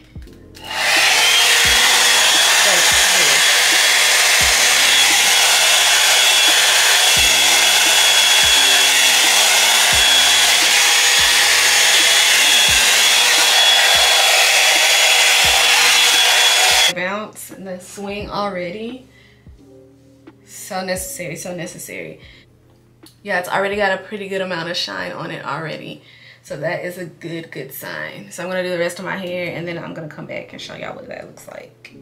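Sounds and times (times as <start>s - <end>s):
blow-dryer running: 0.0s - 17.0s.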